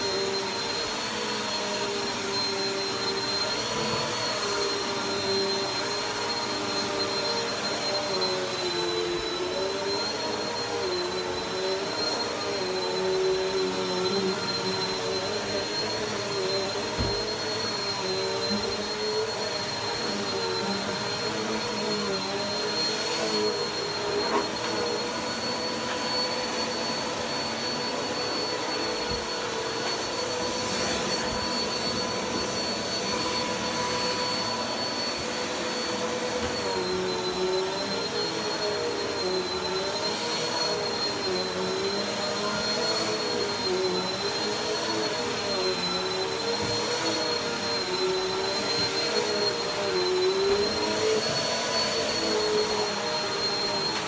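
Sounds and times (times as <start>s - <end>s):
vacuum cleaner motor whine: 0.0s - 54.0s.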